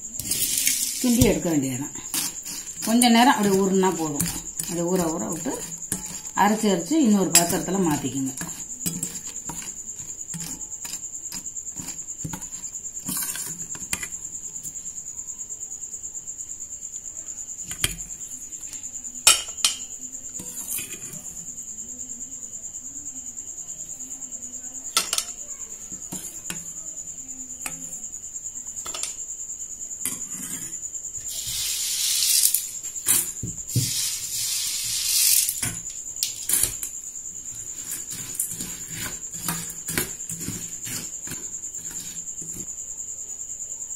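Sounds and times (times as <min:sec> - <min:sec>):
metal spoon scraping steel bowl: 0:00.2 - 0:14.2, 0:20.4 - 0:21.3, 0:30.0 - 0:36.9, 0:37.5 - 0:42.7.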